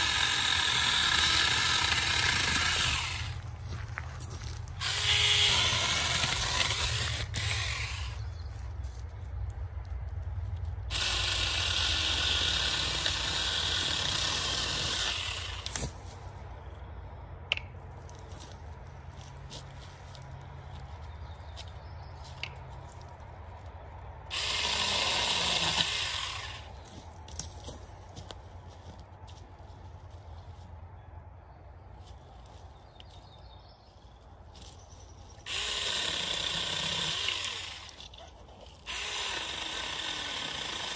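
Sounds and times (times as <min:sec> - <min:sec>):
electric chainsaw cutting saplings: 0:00.0 - 0:03.6, 0:04.8 - 0:08.3, 0:10.9 - 0:16.0, 0:24.3 - 0:26.8, 0:35.4 - 0:40.9.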